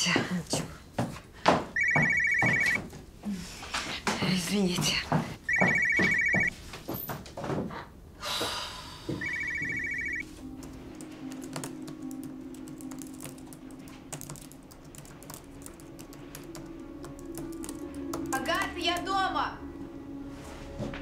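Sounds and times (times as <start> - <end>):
laptop keyboard typing: 1.8 - 2.8, 5.5 - 6.5, 9.2 - 19.1
phone ringtone trill: 1.8 - 2.8, 5.5 - 6.5, 9.2 - 10.3.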